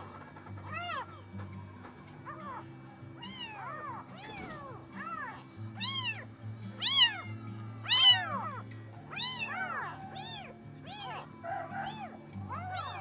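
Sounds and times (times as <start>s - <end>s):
kitten meowing: 3.2s - 13.0s.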